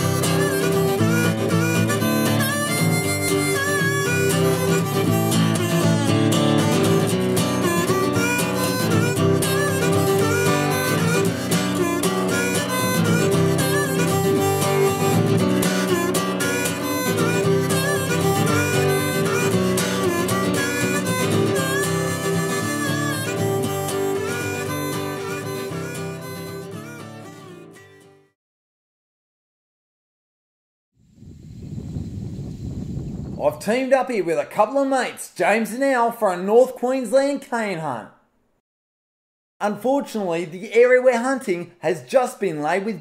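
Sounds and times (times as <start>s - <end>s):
harmonica over guitar music: 0.0s - 28.4s.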